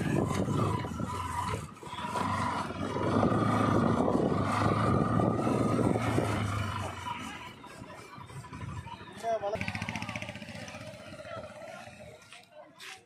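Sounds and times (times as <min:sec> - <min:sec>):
wind noise on microphone: 0:00.0 - 0:06.9
motorcycle engine running: 0:00.0 - 0:12.5.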